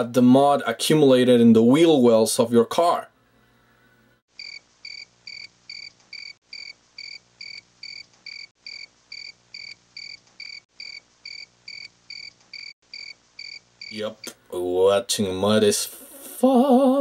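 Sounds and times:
cricket chirping: 4.3 - 14.0.

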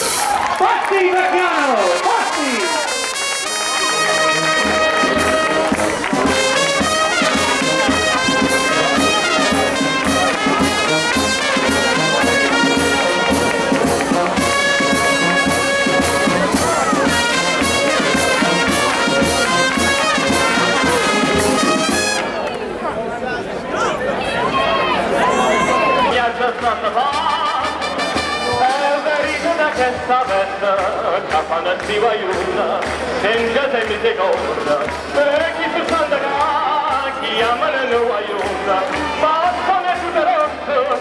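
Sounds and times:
brass band playing: 0.0 - 22.5, 25.2 - 41.0
drum and cymbal beat: 4.0 - 22.2.

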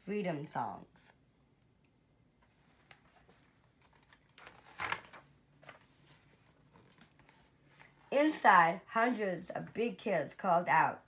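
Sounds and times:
book pages turning: 2.4 - 8.1.

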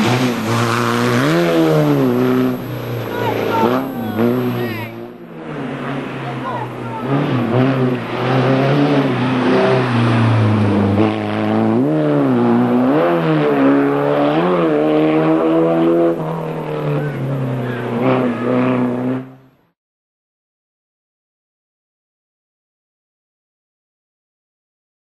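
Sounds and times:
racing car engine revving: 0.0 - 19.8.

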